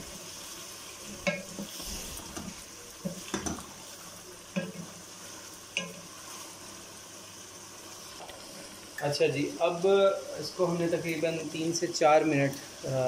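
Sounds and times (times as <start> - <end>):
chicken sizzling in a pot: 0.0 - 13.0.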